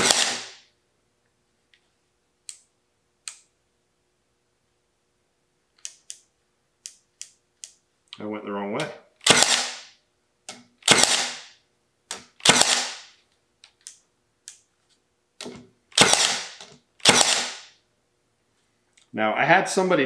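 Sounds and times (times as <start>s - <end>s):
nail gun shots into wood: 0.0s - 0.6s, 9.2s - 9.9s, 10.8s - 13.1s, 15.4s - 17.8s.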